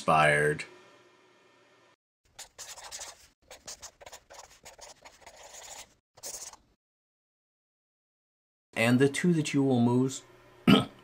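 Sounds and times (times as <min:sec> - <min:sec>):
pen scratching: 0:02.3 - 0:06.6.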